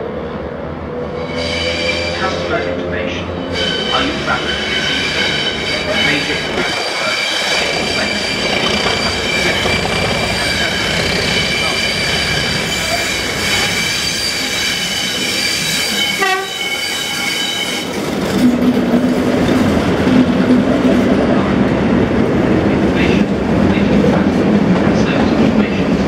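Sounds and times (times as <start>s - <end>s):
train wheels clattering on rails: 3.9s - 21.2s.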